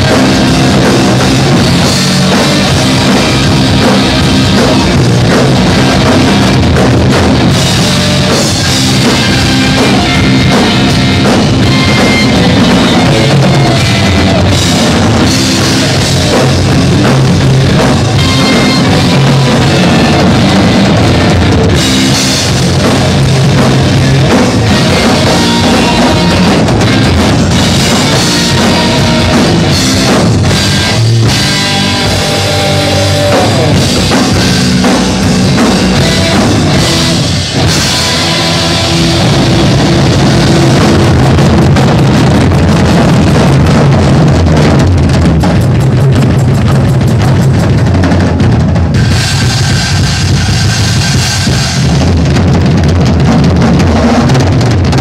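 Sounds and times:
drum kit: 0.0s - 55.0s
electric guitar: 0.0s - 55.0s.

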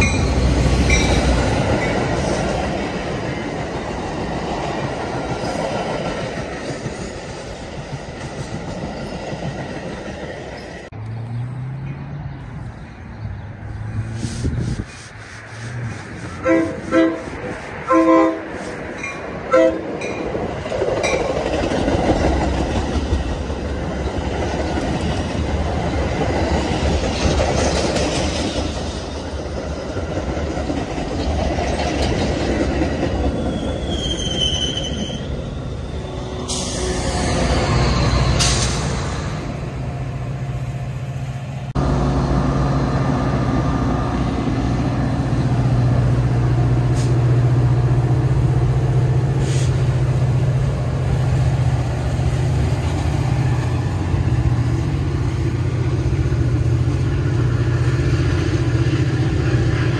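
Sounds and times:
train wheels rumbling on rails: 0.0s - 11.0s, 13.9s - 59.9s
diesel locomotive humming: 13.6s - 27.8s, 28.4s - 59.9s
high wheel squeal: 33.2s - 39.3s.

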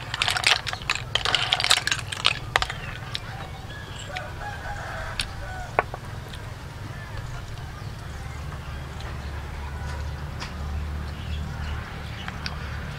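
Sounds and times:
spoon stirring snail shells in metal tray: 0.0s - 8.0s
rooster crowing: 1.3s - 8.9s.

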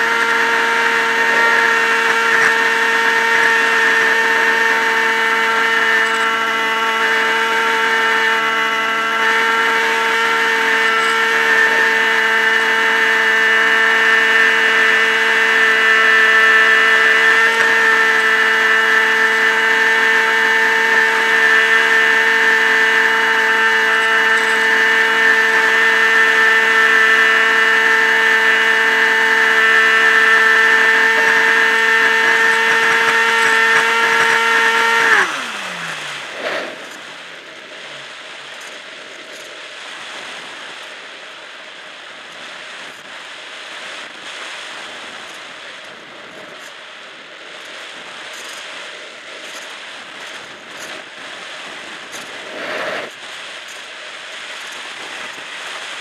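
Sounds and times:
electric motor and propeller whine: 0.0s - 56.0s
rush of air: 36.1s - 38.3s.

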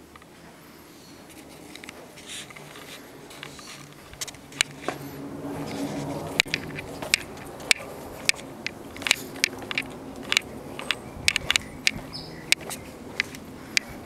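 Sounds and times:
low hum: 0.0s - 14.0s
footsteps on concrete: 1.3s - 14.0s.

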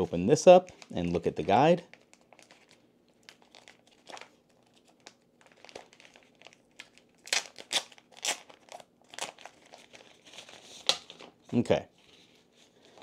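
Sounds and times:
packaging crinkling and rustling: 0.0s - 13.0s.

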